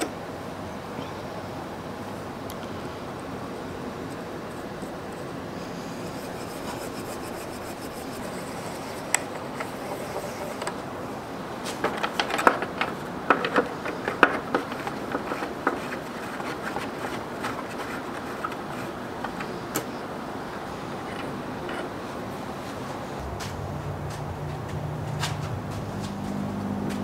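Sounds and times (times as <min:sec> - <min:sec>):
steady hiss: 0:01.5 - 0:11.8
lathe parts clicking and knocking: 0:06.0 - 0:10.9, 0:11.6 - 0:22.0.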